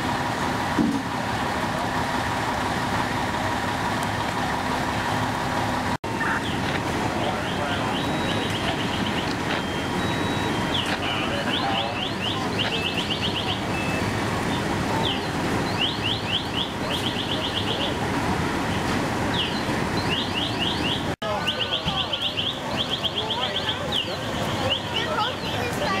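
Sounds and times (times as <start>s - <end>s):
fire engine pumping water: 0.0s - 26.0s
high electronic chirps: 7.3s - 14.2s.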